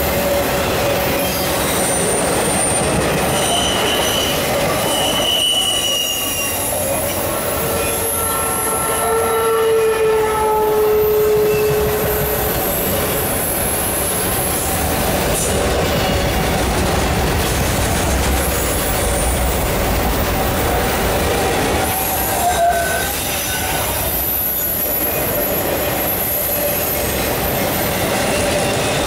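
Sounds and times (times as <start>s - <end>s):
train wheels rumbling on rails: 0.0s - 29.0s
wheel squeal: 0.1s - 8.9s, 21.8s - 29.0s.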